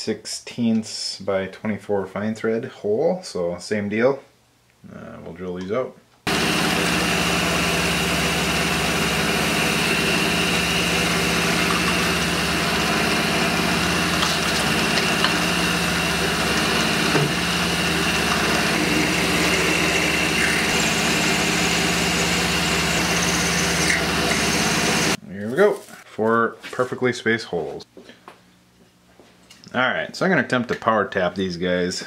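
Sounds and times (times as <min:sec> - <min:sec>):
drill bit high whine: 0:06.3 - 0:25.2
milling machine motor hum: 0:06.3 - 0:25.2.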